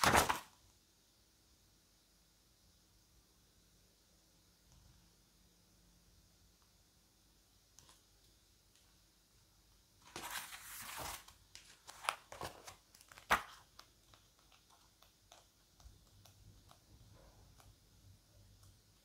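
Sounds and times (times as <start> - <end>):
paper pages rustling: 0.0 - 0.6, 10.0 - 15.5.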